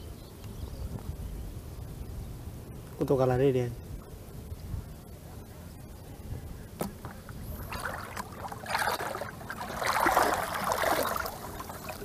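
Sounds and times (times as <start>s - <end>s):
shallow water splashing: 6.9s - 12.0s.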